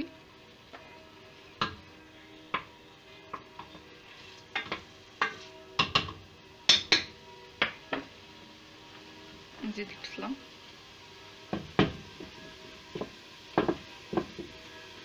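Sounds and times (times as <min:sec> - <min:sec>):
meat sizzling in hot oil: 0:00.0 - 0:15.0
wooden spoon knocking on metal pot: 0:01.6 - 0:01.8, 0:04.5 - 0:08.1, 0:11.5 - 0:14.6.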